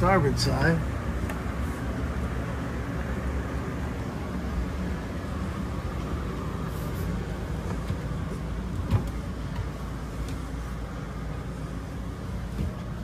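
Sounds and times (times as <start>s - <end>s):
machinery humming: 0.0s - 13.0s
footstep thump on steps: 8.8s - 10.5s.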